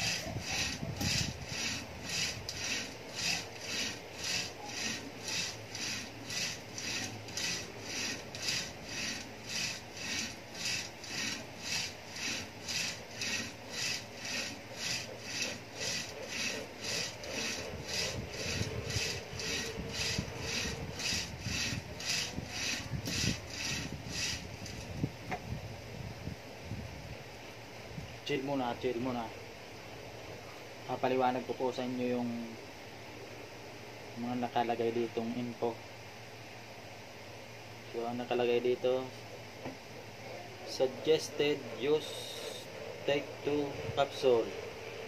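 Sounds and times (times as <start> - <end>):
rope rubbing through pulley: 0.0 - 25.0.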